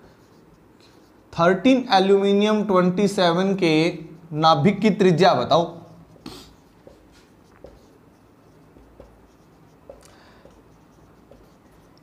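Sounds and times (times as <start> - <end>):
marker writing on whiteboard: 0.0 - 12.0
marker tapping: 5.8 - 12.0.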